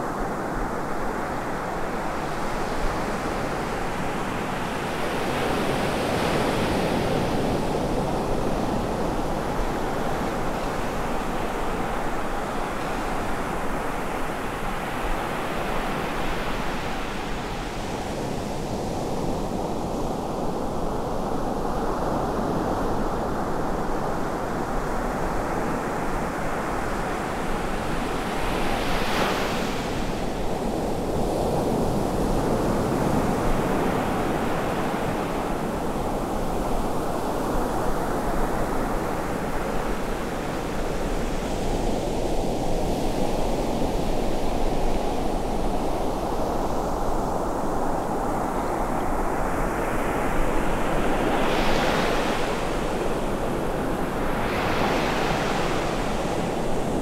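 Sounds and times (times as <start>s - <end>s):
ocean surf washing up beach: 24.1s - 57.0s.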